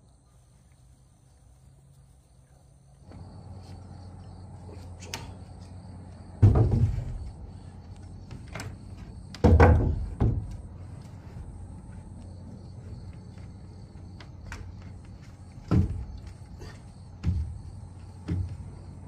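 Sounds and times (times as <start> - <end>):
steady low hum: 0.0 - 19.0
heavy thumps: 6.3 - 7.5, 8.2 - 10.7, 14.4 - 18.9.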